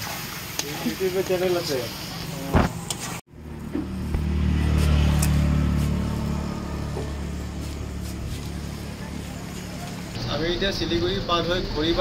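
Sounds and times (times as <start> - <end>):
vehicle engine rumbling past: 3.3 - 12.0.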